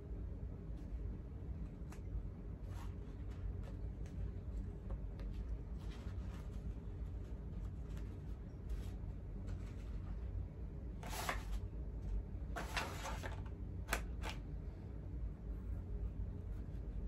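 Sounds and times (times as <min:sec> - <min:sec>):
low hum: 0:00.0 - 0:17.0
face mask rustling: 0:02.5 - 0:10.3.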